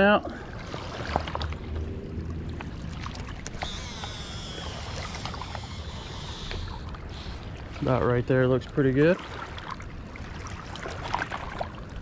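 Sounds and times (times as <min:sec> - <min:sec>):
water noise: 0:00.0 - 0:12.0
wind: 0:00.0 - 0:12.0
fishing reel spool whine: 0:03.4 - 0:08.3.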